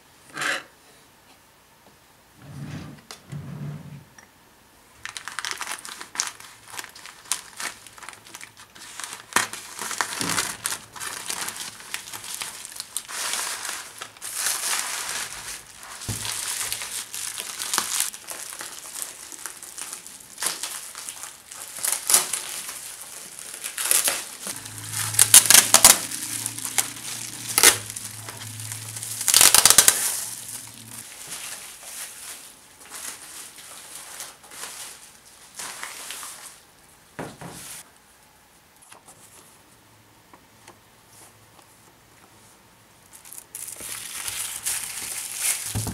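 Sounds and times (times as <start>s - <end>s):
bubble wrap crinkling: 5.0s - 36.6s, 43.0s - 45.9s.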